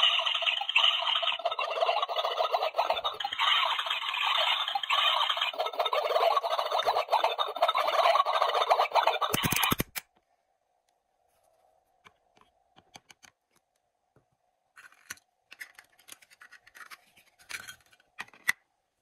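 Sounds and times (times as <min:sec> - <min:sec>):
plastic toy clicks: 0:09.2 - 0:10.1.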